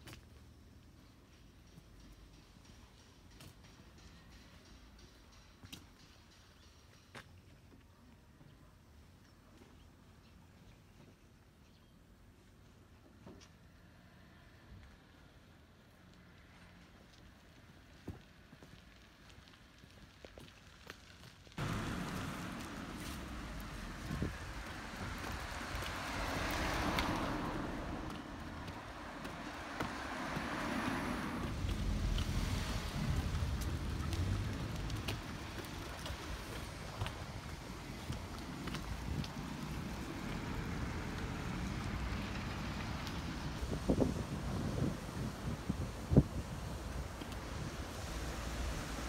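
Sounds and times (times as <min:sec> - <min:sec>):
car tyre noise passing: 0:18.3 - 0:49.0.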